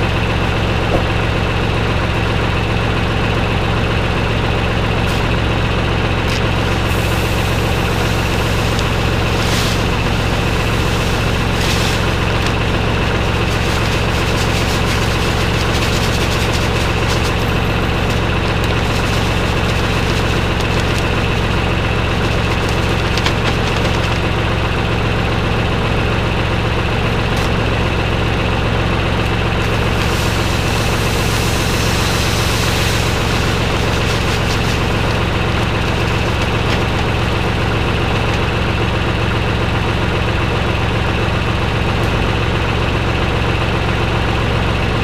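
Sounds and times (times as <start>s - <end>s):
high whine: 0.0s - 40.1s
tractor diesel engine running: 0.0s - 45.0s
hiss: 6.3s - 24.2s, 29.6s - 38.3s.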